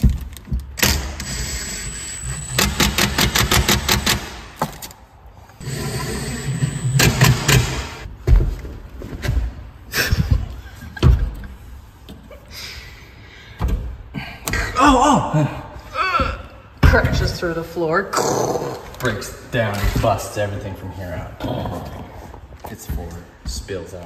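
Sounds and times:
impact driver whine and hammering: 0:00.8 - 0:04.5, 0:05.6 - 0:08.1.

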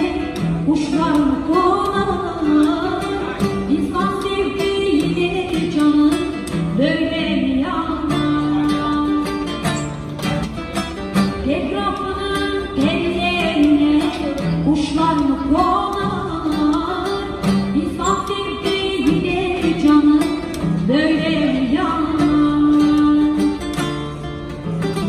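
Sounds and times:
woman singing into a microphone: 0:00.0 - 0:09.8, 0:11.2 - 0:25.0
acoustic guitar: 0:00.0 - 0:25.0.

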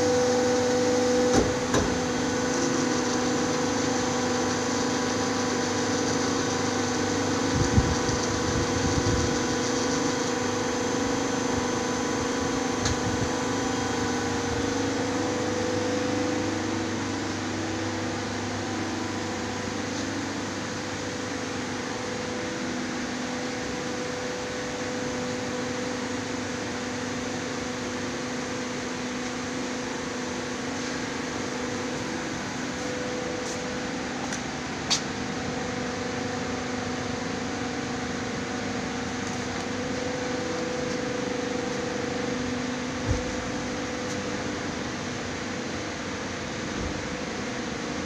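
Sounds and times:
hydraulic pump motor hum: 0:00.0 - 0:48.0.

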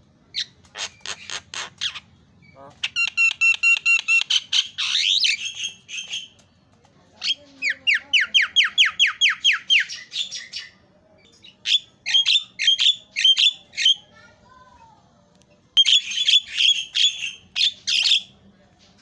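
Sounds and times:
bird harsh squawk: 0:00.4 - 0:02.1, 0:15.8 - 0:18.3.

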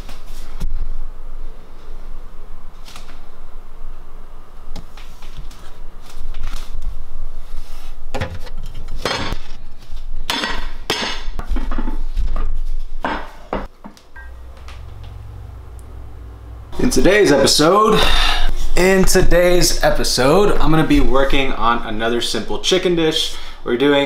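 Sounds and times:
kitchenware clattering and clinking: 0:09.0 - 0:09.5.

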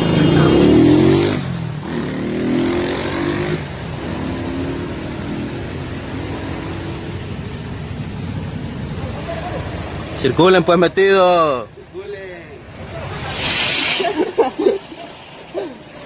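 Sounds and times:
vehicle engine revving: 0:00.0 - 0:07.2.

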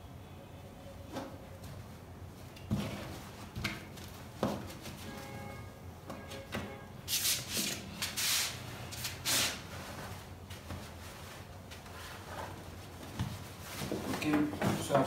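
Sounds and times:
fabric handling: 0:09.7 - 0:15.0.

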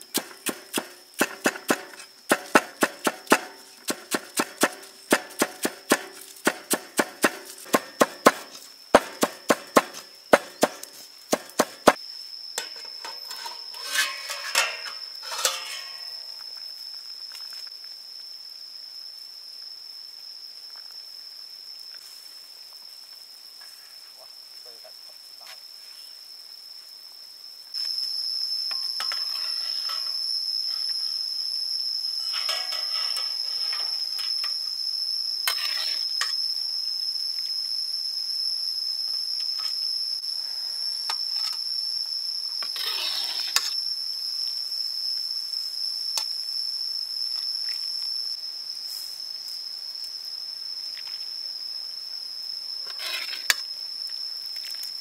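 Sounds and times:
high-pitched insect drone: 0:00.0 - 0:55.0
metal ladle scraping a wok: 0:13.1 - 0:16.1, 0:32.2 - 0:34.0.

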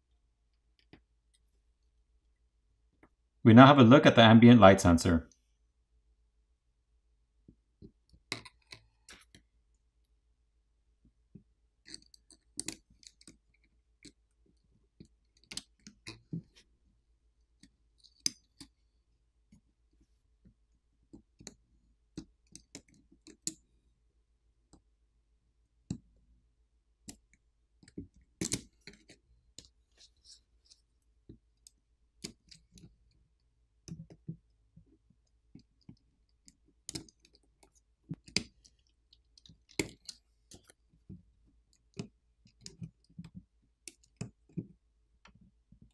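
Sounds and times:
small plastic clicks and taps: 0:11.3 - 0:14.2, 0:33.8 - 0:45.9.

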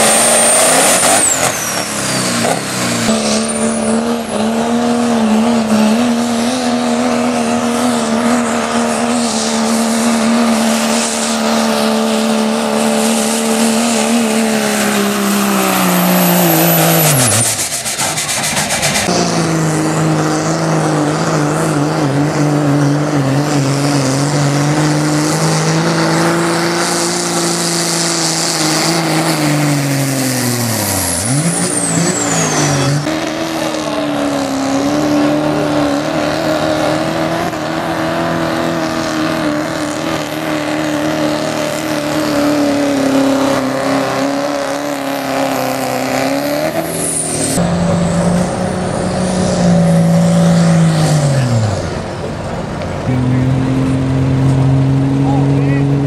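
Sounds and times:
diesel truck engine at full throttle: 0:00.0 - 0:56.0.

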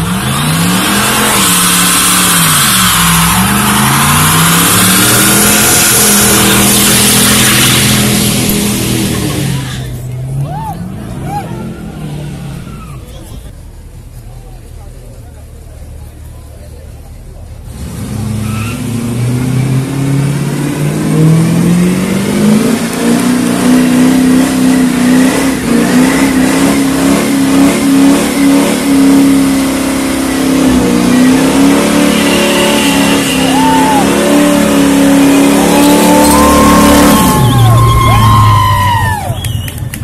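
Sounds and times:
tyres squealing: 0:00.0 - 0:10.0, 0:30.9 - 0:39.9
car engine revving: 0:00.0 - 0:40.0.

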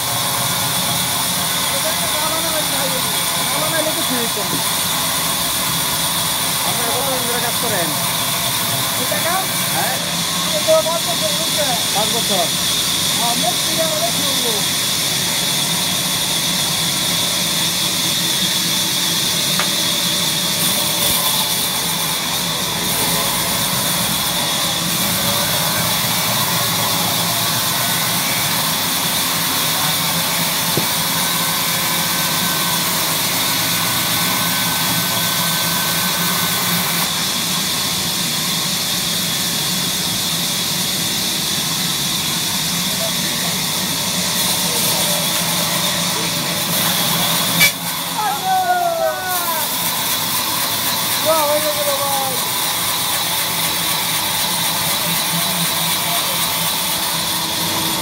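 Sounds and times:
band saw cutting log: 0:00.0 - 0:48.3, 0:49.4 - 0:58.0.

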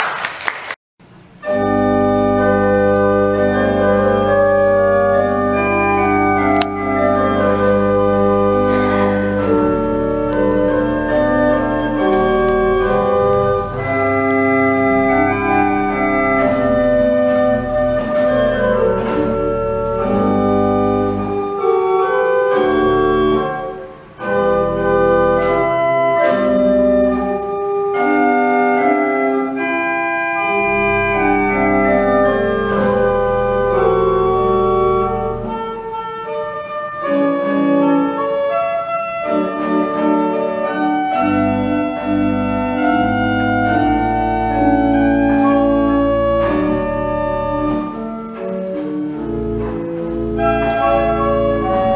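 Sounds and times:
pipe organ playing sustained chords: 0:01.1 - 0:51.9.

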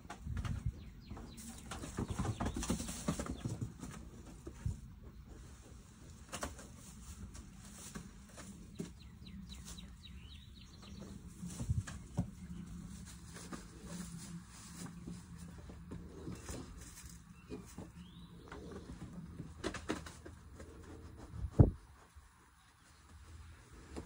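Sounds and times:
goats rustling on straw: 0:01.4 - 0:19.0.

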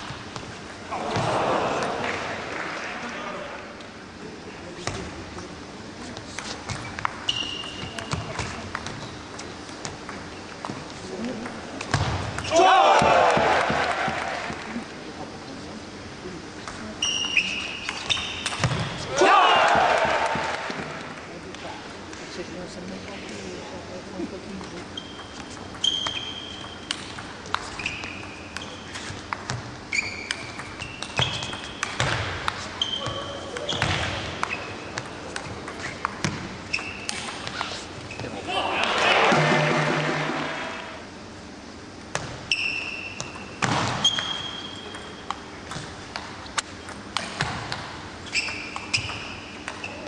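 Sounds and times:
shoes squeaking on floor: 0:06.4 - 0:09.6, 0:17.0 - 0:18.6, 0:24.8 - 0:26.9, 0:27.6 - 0:31.8, 0:32.6 - 0:35.0, 0:35.8 - 0:36.0, 0:36.7 - 0:38.4, 0:42.5 - 0:43.4, 0:44.0 - 0:45.2, 0:48.2 - 0:50.0.

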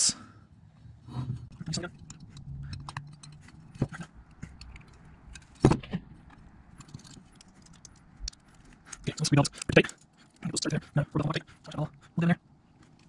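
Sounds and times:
small metal parts clicking: 0:01.5 - 0:10.5.

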